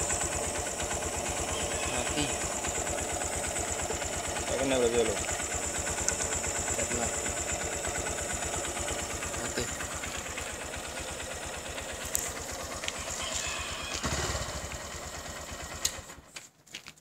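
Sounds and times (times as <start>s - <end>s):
motorcycle engine idling: 0.0s - 16.3s
engine cutting out with a click: 5.2s - 6.2s, 12.0s - 14.8s, 15.7s - 16.2s.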